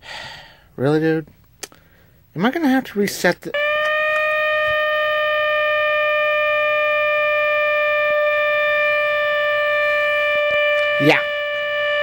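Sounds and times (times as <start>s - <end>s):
alarm clock buzzing: 3.5s - 12.0s.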